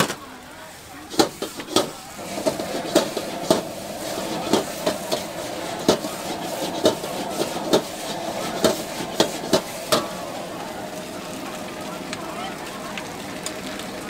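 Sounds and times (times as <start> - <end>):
hiss of frying: 0.0 - 14.0
metal ladle clanking against wok: 1.1 - 10.2.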